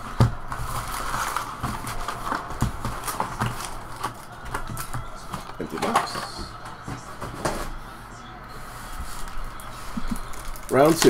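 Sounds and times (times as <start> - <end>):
foil packs crinkling: 0.0 - 7.8, 8.9 - 11.0.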